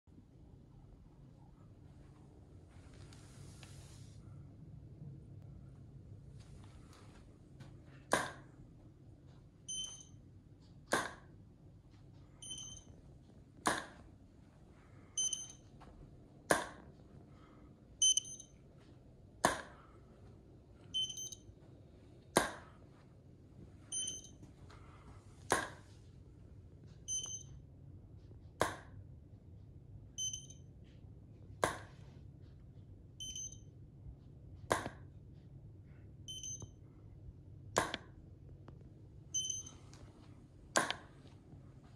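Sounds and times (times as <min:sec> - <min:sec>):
short high beep: 0:12.4 - 0:12.9, 0:15.2 - 0:15.6, 0:18.0 - 0:18.5, 0:21.0 - 0:21.4, 0:23.9 - 0:24.4, 0:30.2 - 0:30.6, 0:33.2 - 0:33.6, 0:36.3 - 0:36.7, 0:39.4 - 0:39.7.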